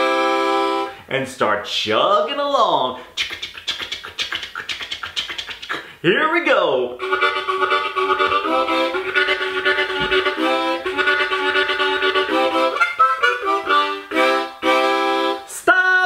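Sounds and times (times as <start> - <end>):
harmonica chugging chords: 0.0 - 1.1, 7.0 - 15.6.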